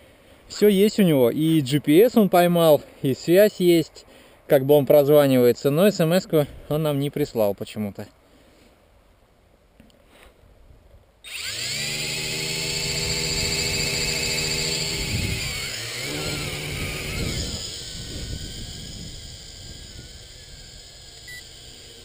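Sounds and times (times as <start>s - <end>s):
quadcopter propellers buzzing: 11.3s - 22.0s.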